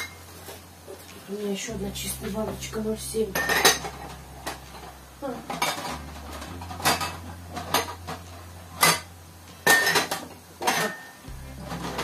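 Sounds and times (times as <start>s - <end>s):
glass jars clinking against pot: 3.4s - 4.0s, 8.8s - 12.0s.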